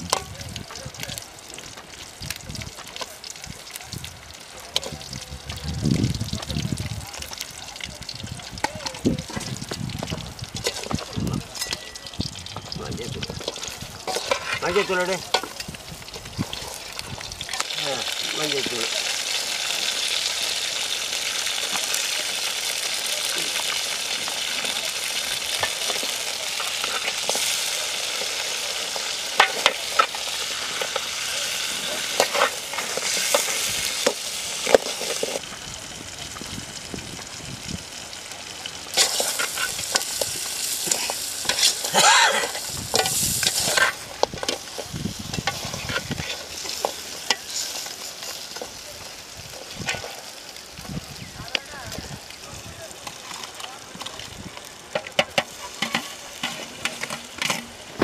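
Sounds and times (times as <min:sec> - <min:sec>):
food sizzling in a pan: 0:00.0 - 0:58.0
metal spoon scraping a pan: 0:10.6 - 0:12.0, 0:12.6 - 0:16.9, 0:25.4 - 0:35.4, 0:38.9 - 0:48.7, 0:54.9 - 0:58.0.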